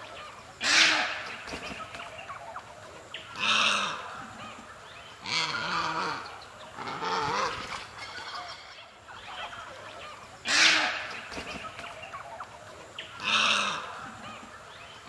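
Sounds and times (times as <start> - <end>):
small birds chattering faintly: 0.0 - 15.0
heron harsh croaking calls: 0.6 - 1.4, 3.2 - 4.2, 5.2 - 8.7, 10.4 - 11.3, 13.0 - 14.0.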